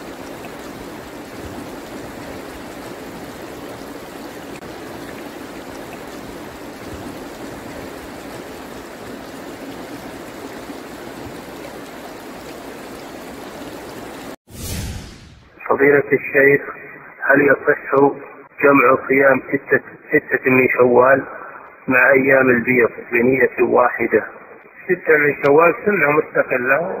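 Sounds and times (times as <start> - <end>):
river water rushing: 0.0 - 14.4.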